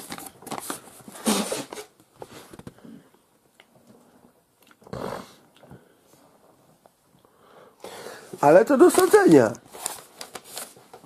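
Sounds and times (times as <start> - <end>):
paper rustling: 0.0 - 2.7, 8.4 - 11.0.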